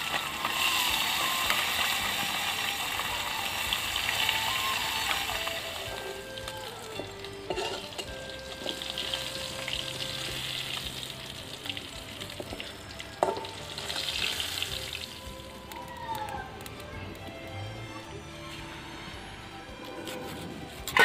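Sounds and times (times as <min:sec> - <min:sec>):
food sizzling in a wok: 0:00.0 - 0:15.5
spatula scraping wok: 0:04.9 - 0:11.0, 0:20.0 - 0:21.0
spatula knocking on wok: 0:07.0 - 0:08.8.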